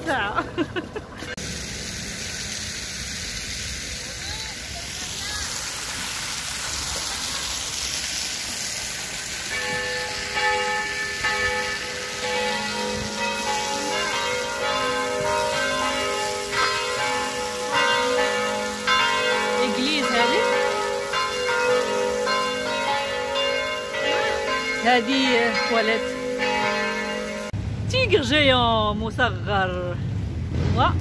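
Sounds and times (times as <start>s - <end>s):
fountain water splashing: 0.0s - 27.5s
church bells ringing: 9.5s - 27.6s.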